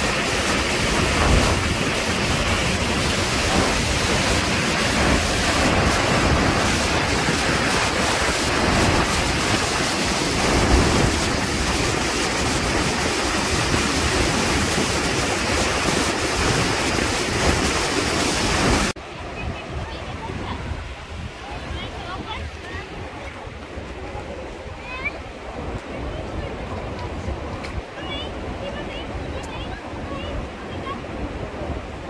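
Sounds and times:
waterfall rushing: 0.0 - 32.0
wind rumbling on microphone: 0.0 - 32.0.

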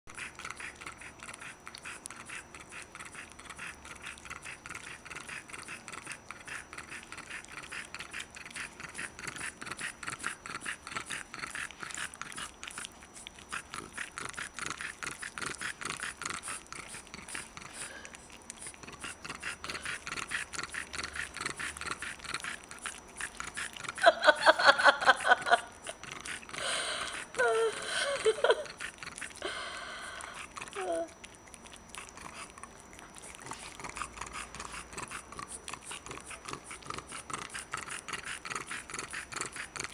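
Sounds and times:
dog licking slurps: 0.1 - 39.9.

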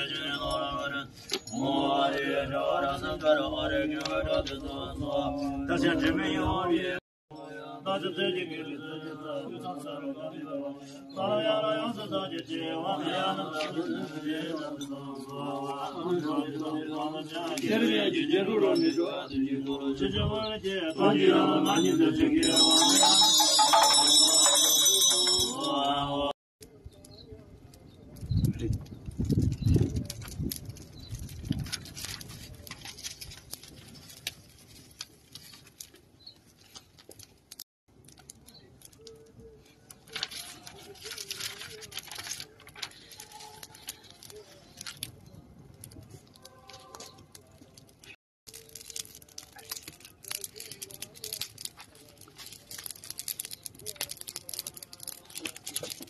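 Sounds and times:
fire crackling and popping: 27.0 - 56.0.

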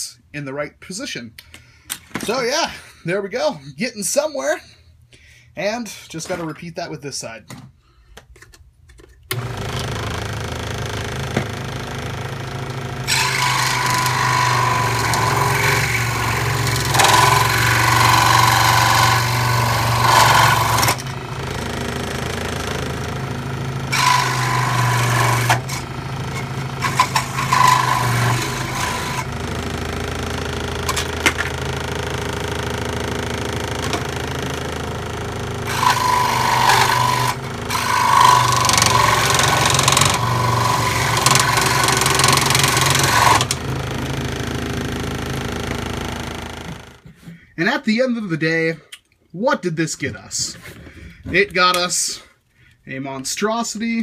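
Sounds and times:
scroll saw motor hum: 9.3 - 47.0
saw blade cutting plastic: 13.0 - 23.0, 23.9 - 34.7, 35.6 - 43.7.

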